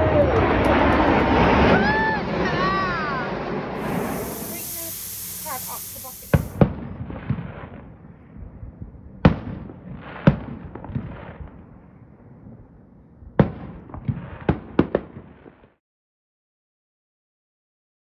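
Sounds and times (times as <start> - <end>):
fireworks shells bursting: 3.8 - 6.7.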